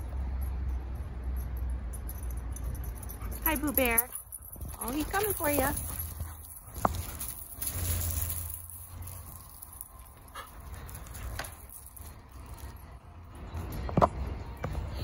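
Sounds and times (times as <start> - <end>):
dogs scuffling on gravel: 3.4 - 12.8.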